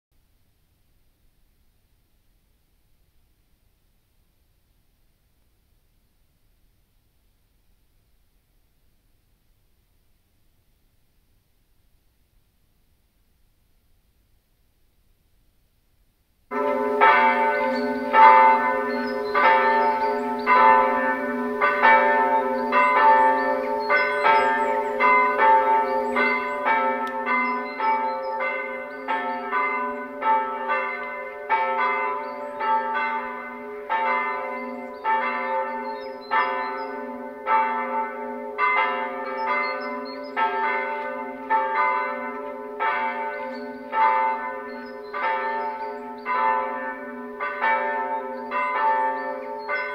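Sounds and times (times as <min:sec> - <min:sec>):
church bells ringing: 0:16.5 - 0:49.9.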